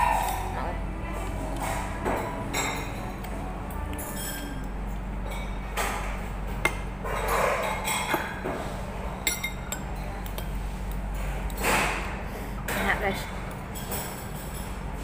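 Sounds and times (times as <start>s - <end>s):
steady low hum: 0.0s - 15.0s
cutlery clinking on ceramic bowl: 9.2s - 10.5s.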